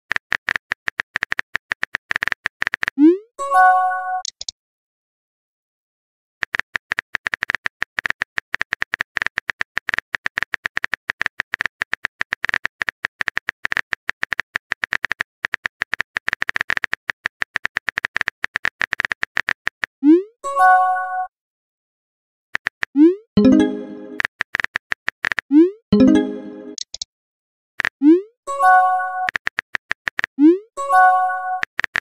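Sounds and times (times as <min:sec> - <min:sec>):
phone keyboard typing taps: 0:00.1 - 0:03.0, 0:06.4 - 0:19.9, 0:29.2 - 0:30.4, 0:31.6 - 0:32.0.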